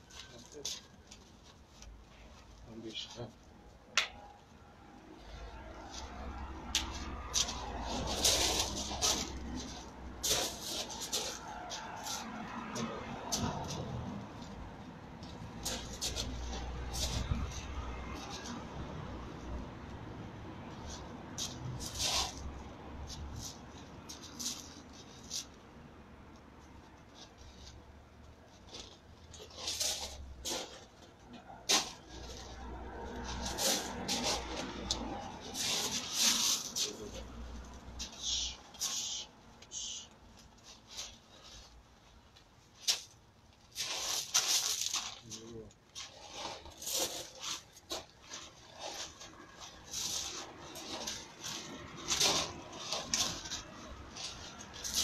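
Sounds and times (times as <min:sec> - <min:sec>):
feet shuffling on gravel: 0:06.9 - 0:12.3, 0:31.6 - 0:37.3, 0:43.7 - 0:55.0.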